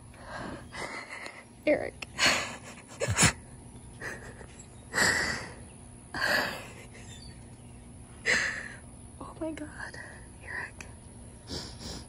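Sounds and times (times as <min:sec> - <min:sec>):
person sniffing and breathing hard: 0:11.4 - 0:12.0.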